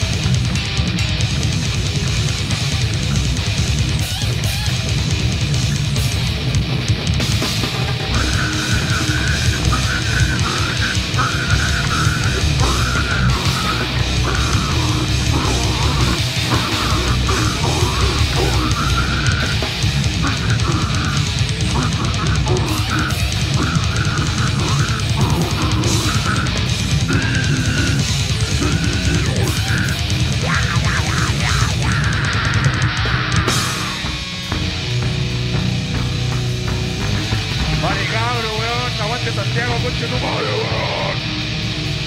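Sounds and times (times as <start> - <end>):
bass guitar: 0.0 - 42.0
distorted electric guitar: 0.0 - 42.0
drum kit: 0.0 - 42.0
person shouting harsh vocals: 8.1 - 34.1, 37.8 - 41.2.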